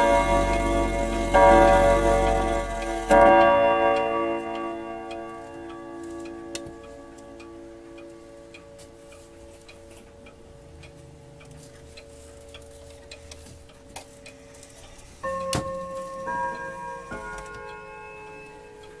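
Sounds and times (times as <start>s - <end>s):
clock chime ringing: 0.0s - 9.5s, 15.2s - 19.0s
pendulum clock ticking: 0.0s - 19.0s.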